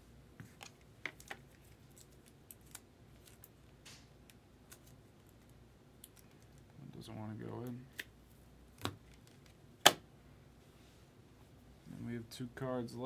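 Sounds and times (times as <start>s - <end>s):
trading cards in plastic sleeves: 0.5s - 3.7s.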